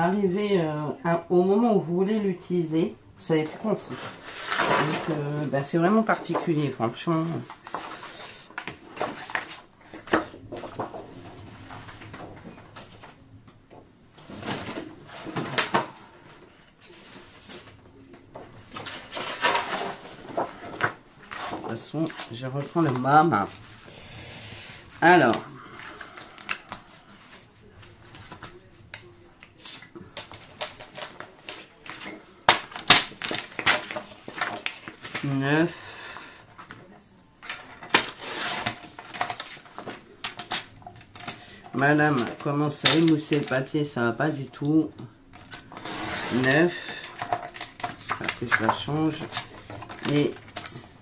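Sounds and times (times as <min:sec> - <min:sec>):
paper rustling: 0:03.4 - 0:13.3, 0:14.2 - 0:23.8, 0:24.7 - 0:51.0
paper and tools clicking: 0:45.4 - 0:51.0.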